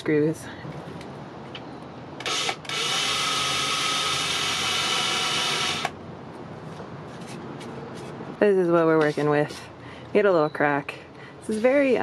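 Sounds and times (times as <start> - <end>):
cordless drill whining into wood: 2.2 - 6.0.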